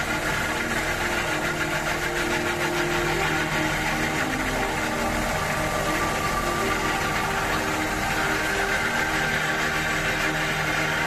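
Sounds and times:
blades grinding rock: 0.0s - 11.0s
stationary engine running: 0.0s - 11.0s.

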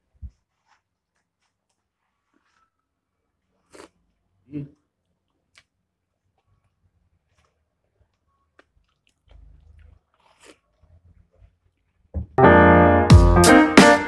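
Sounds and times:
chewing toast: 1.4s - 12.1s
loud background music: 12.4s - 14.0s.

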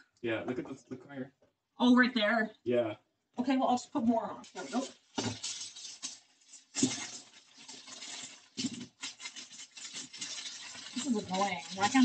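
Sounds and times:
aluminum foil crinkling: 4.4s - 12.0s.

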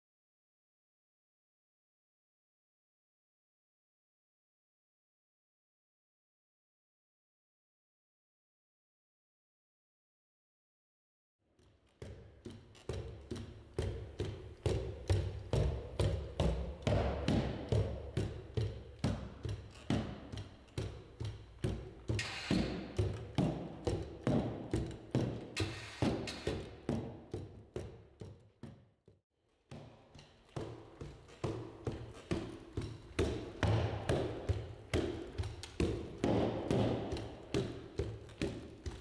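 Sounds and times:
robot feet tapping on rubber mats: 11.7s - 39.0s.

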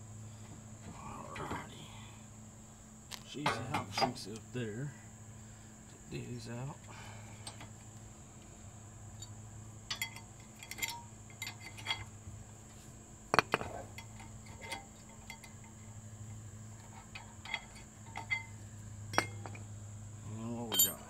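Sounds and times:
steady low hum: 0.0s - 21.0s
metal hand tools clinking: 9.9s - 12.1s, 20.7s - 21.0s.

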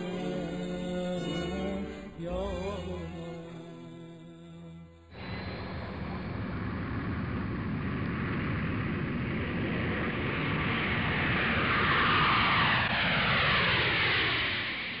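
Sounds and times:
aircraft passing overhead: 5.1s - 15.0s.

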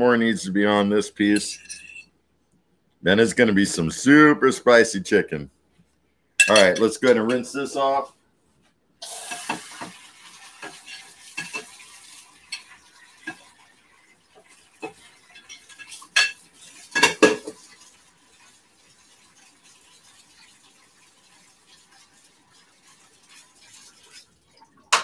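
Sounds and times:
cutlery clinking against plate: 1.4s - 2.0s, 6.4s - 7.4s, 14.8s - 17.5s
running tap water: 9.0s - 25.0s.

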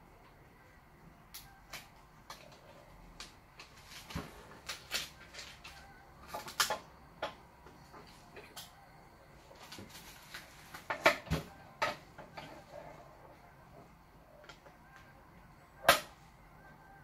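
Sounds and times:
plastic film clicks and crinkles: 1.3s - 7.4s, 9.5s - 12.5s.

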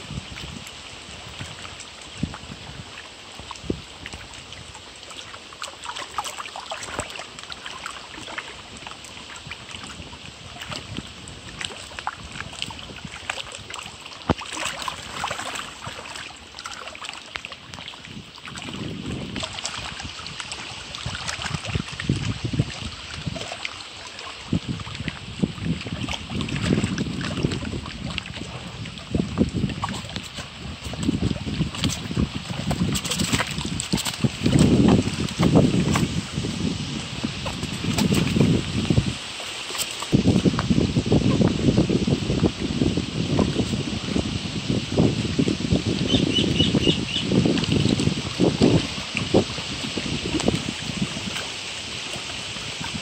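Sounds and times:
wind buffeting microphone: 0.0s - 4.8s, 18.0s - 23.6s, 24.3s - 39.4s, 40.0s - 53.0s
water lapping against rocky shore: 0.0s - 53.0s
fish thrashing in water: 3.9s - 53.0s.

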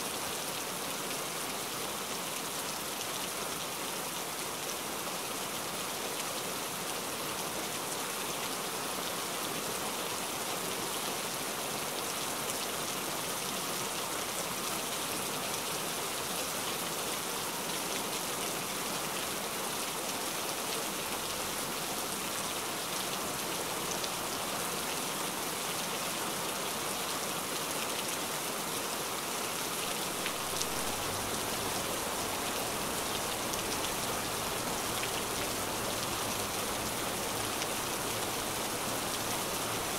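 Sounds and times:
heavy rain falling: 17.5s - 39.9s.

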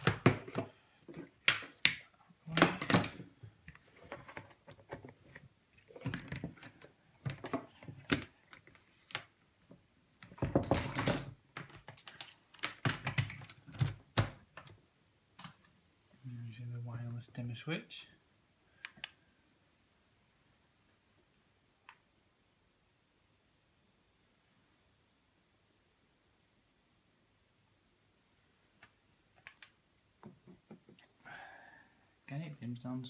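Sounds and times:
plastic plugs and cables clicking: 0.0s - 9.4s, 10.2s - 14.8s, 15.4s - 15.8s, 18.8s - 19.2s, 28.8s - 31.1s.

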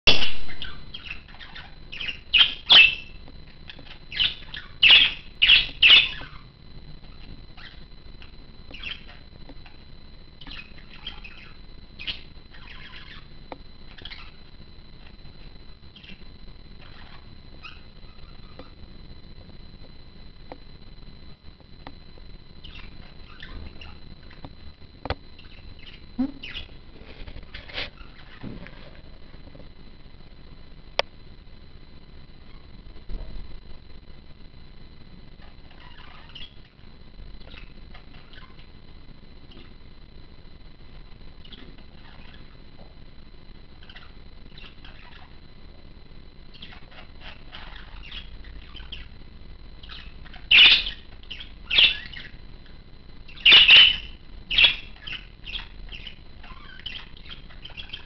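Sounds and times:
small animal squeaking: 0.1s - 9.8s, 10.4s - 13.3s, 13.9s - 16.2s, 16.8s - 18.8s, 22.6s - 24.4s, 25.4s - 26.8s, 49.8s - 52.4s, 53.3s - 58.0s
faint chirps: 0.1s - 58.0s.

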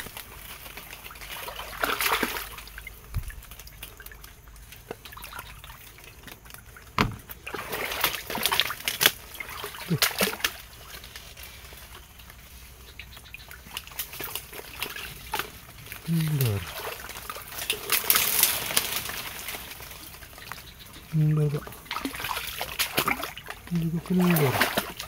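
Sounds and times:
wading through water: 0.0s - 25.0s
sharp knock: 7.0s - 7.2s.

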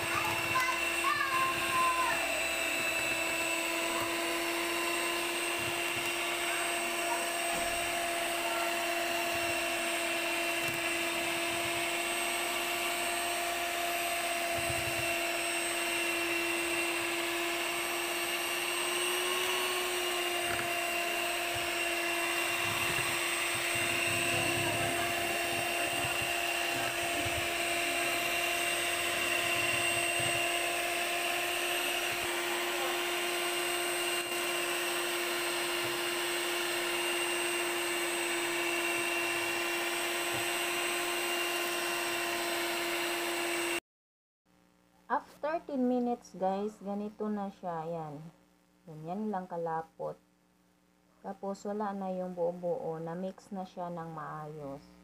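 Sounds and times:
electric hand mixer whining: 0.0s - 43.8s.

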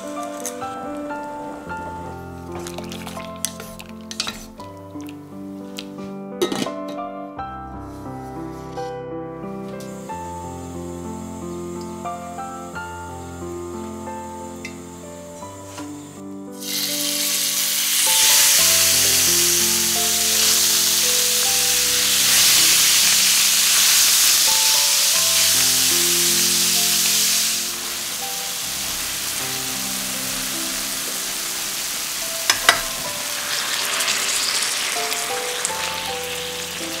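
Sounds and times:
meat sizzling in hot oil: 2.0s - 5.0s, 16.6s - 37.0s.

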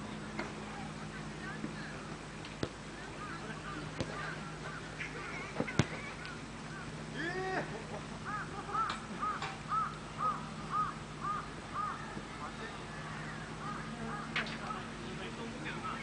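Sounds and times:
ball kicked: 2.6s - 2.8s, 4.0s - 4.3s, 5.6s - 6.1s
bird calling: 3.1s - 15.0s, 15.6s - 16.0s
light knocks of play: 5.5s - 6.4s.

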